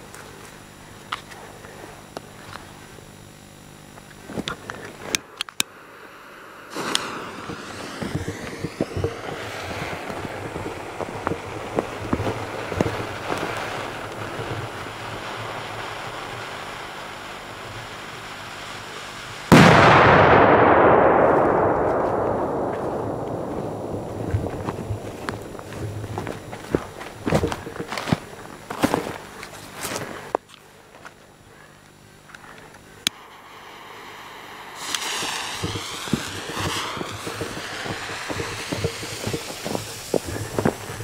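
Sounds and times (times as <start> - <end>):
firework hissing and crackling: 4.5 - 30.0, 33.0 - 41.0
loud firework bang: 19.5 - 26.0, 33.2 - 40.8.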